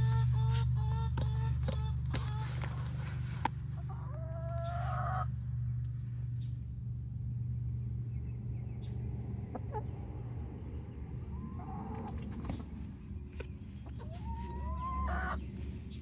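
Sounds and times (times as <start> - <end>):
hen clucking: 0.0 - 5.4, 9.5 - 10.1, 11.2 - 12.7, 13.4 - 16.0
steady low hum: 0.0 - 16.0
hen calling: 13.8 - 15.6.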